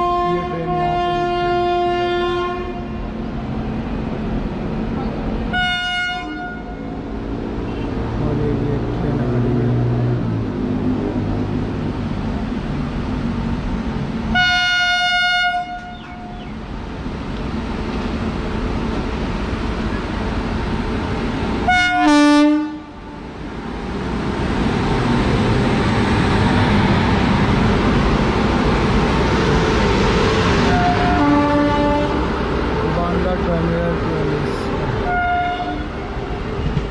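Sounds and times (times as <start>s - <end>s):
locomotive horn: 0.0s - 3.0s, 5.5s - 6.9s, 14.3s - 16.3s, 21.6s - 23.0s, 30.7s - 32.2s, 35.0s - 36.0s
train rumbling past: 0.0s - 36.9s.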